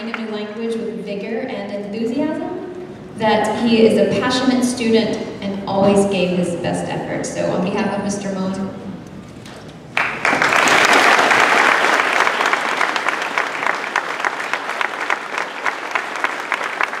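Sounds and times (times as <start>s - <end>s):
audience applause: 9.9s - 17.0s.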